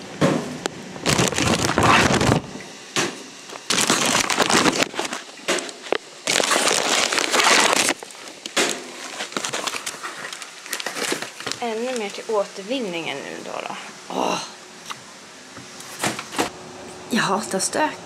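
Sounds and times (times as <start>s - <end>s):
plastic bag crinkling: 1.0s - 2.5s, 3.5s - 12.4s.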